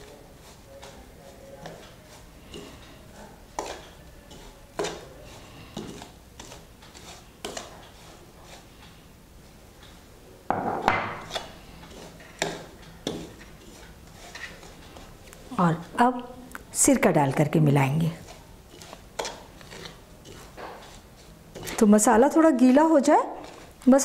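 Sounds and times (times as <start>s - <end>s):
metal spoon scraping steel plate: 18.7s - 21.0s.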